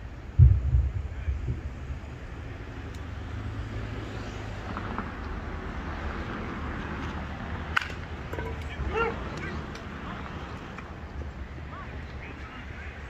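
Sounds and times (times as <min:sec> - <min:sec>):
low outdoor rumble: 0:00.0 - 0:13.0
bat hitting baseball: 0:07.7 - 0:08.6.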